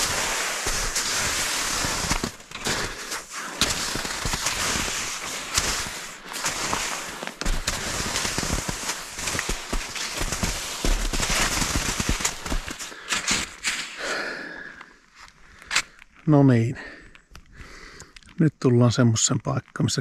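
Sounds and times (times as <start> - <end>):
footsteps snapping twigs: 0.0 - 14.0, 14.7 - 16.3.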